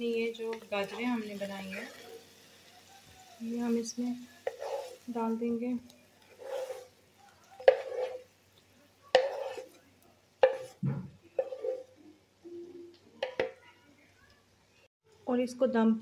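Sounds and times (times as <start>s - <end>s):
spoon knocking on metal pan: 7.6s - 8.2s, 9.1s - 9.6s, 10.4s - 11.8s, 13.2s - 13.6s.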